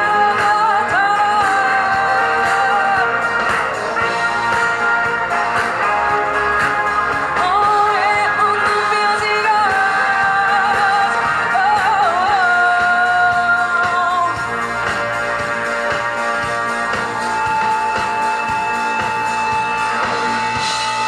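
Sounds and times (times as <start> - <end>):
woman singing: 0.0 - 3.6, 7.4 - 14.6
live pop-rock band: 0.0 - 21.0.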